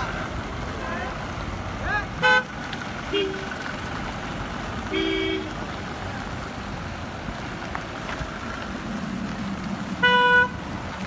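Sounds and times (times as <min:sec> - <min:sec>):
cars driving past: 0:00.0 - 0:11.0
car horn: 0:02.2 - 0:02.5, 0:03.1 - 0:03.6, 0:04.9 - 0:05.6, 0:10.0 - 0:10.6.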